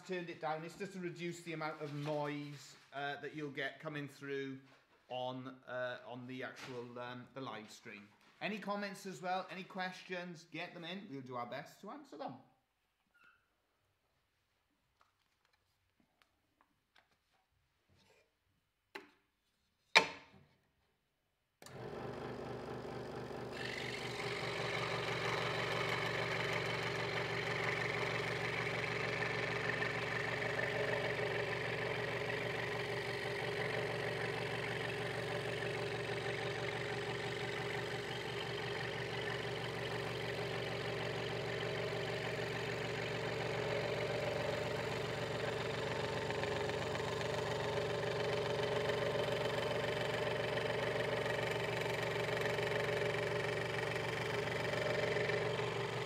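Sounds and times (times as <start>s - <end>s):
scroll saw cutting wood: 21.6s - 56.0s.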